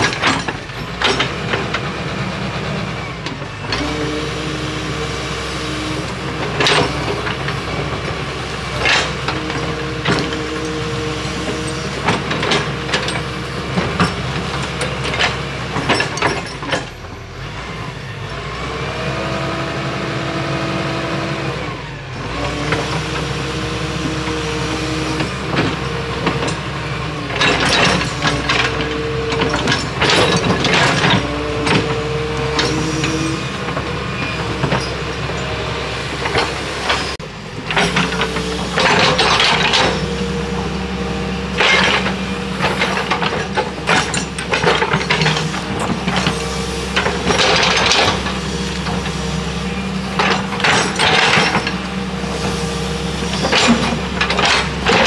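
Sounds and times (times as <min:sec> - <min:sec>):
sharp clanks and knocks: 0:00.0 - 0:01.8, 0:08.7 - 0:10.8, 0:11.4 - 0:17.1, 0:25.2 - 0:35.5, 0:36.2 - 0:40.7, 0:41.5 - 0:52.6, 0:53.2 - 0:55.0
excavator diesel engine running: 0:00.0 - 0:55.0.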